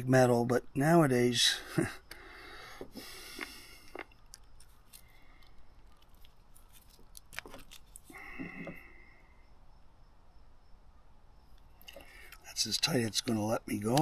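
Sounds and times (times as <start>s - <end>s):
screwdriver clicking and scraping: 11.9s - 14.0s.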